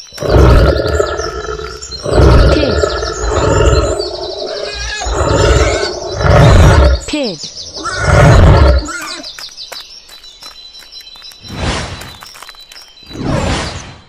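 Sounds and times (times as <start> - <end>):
lion roaring: 0.2 - 7.1, 7.8 - 9.0.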